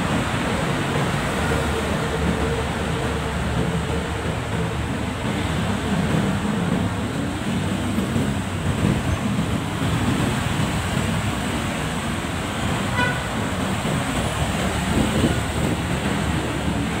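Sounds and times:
traffic rumble: 0:00.0 - 0:17.0
vehicle horn toot: 0:12.9 - 0:13.4.

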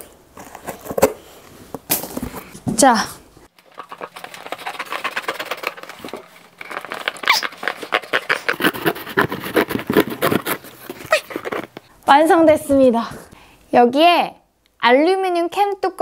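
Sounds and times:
scissors snipping cardboard: 0:07.7 - 0:11.8.

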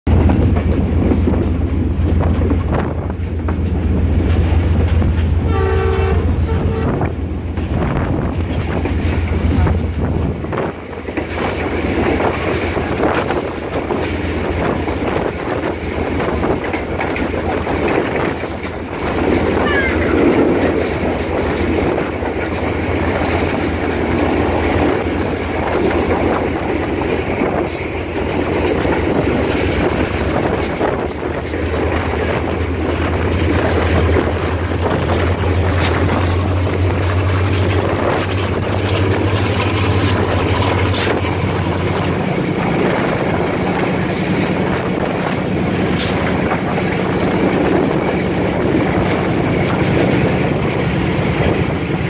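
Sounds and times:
locomotive engine drone: 0:00.1 - 0:52.0
train horn blast: 0:05.4 - 0:07.2, 0:19.5 - 0:20.4.

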